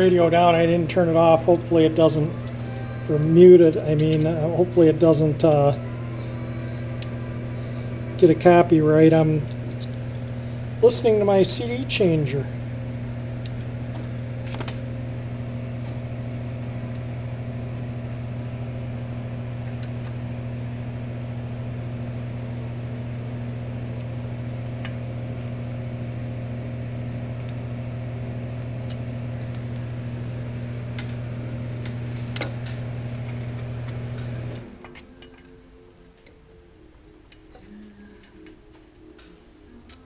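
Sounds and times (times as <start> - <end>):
machine motor humming: 0.0 - 40.0.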